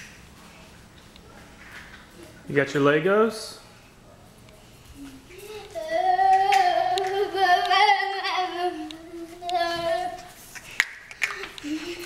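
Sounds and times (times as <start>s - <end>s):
child singing wordless tune: 5.0s - 10.4s.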